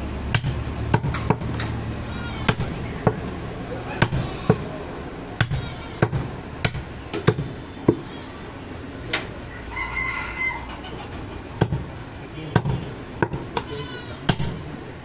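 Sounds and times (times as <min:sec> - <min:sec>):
cleaver chopping meat and bone: 0:00.3 - 0:01.7, 0:02.4 - 0:03.3, 0:04.0 - 0:04.7, 0:05.4 - 0:08.1, 0:11.6 - 0:11.9, 0:12.5 - 0:13.7, 0:14.3 - 0:14.7.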